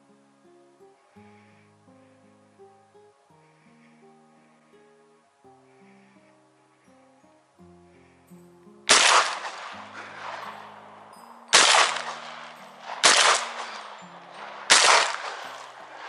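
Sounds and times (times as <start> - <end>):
quiet guitar music: 0.0 - 16.0
shotgun shots with echo: 8.9 - 10.6, 11.5 - 14.0, 14.6 - 16.0.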